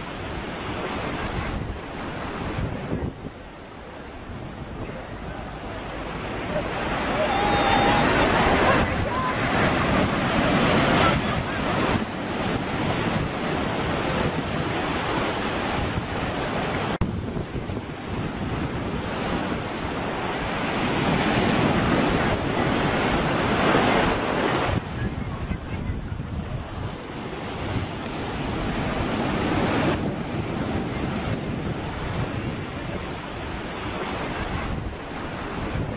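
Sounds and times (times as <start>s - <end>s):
wind buffeting microphone: 0.0s - 35.9s
small surf breaking: 6.0s - 15.4s.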